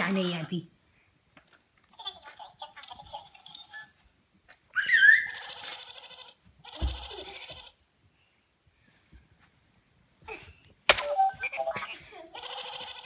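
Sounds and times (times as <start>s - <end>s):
child squealing: 4.8s - 5.5s.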